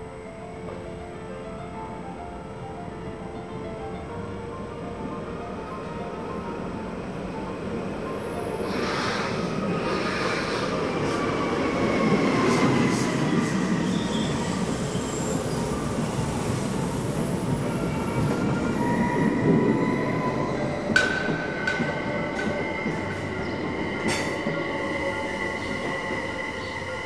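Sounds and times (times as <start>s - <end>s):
train wheels rumbling on rail: 8.6s - 26.8s.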